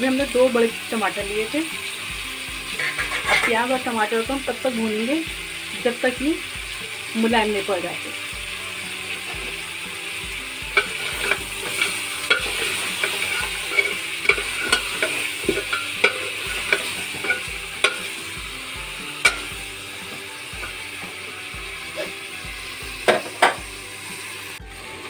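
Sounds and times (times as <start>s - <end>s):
meat and onions sizzling in a pot: 0.0s - 25.0s
spatula scraping a metal pot: 2.7s - 3.6s, 10.7s - 18.4s.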